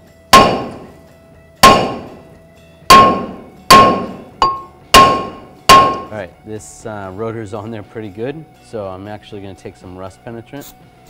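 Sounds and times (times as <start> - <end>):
hammer striking metal rotor: 0.3 - 0.9, 1.6 - 2.2, 2.9 - 6.2.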